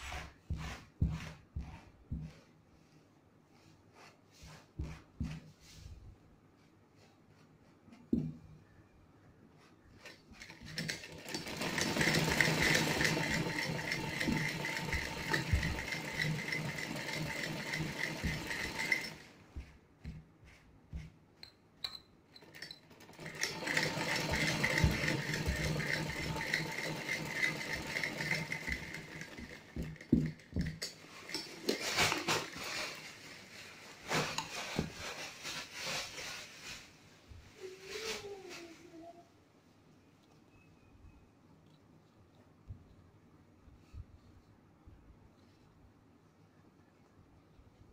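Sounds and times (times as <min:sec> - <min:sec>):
sewing machine running: 0:10.4 - 0:19.3, 0:22.4 - 0:30.7
cloth rustling: 0:31.0 - 0:38.9.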